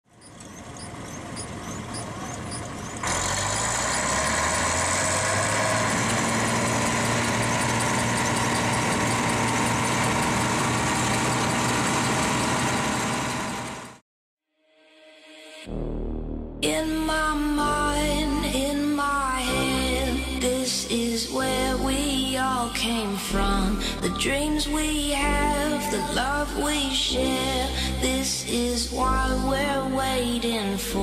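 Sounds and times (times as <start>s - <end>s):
diesel engine running: 0.1s - 14.0s, 16.7s - 29.6s.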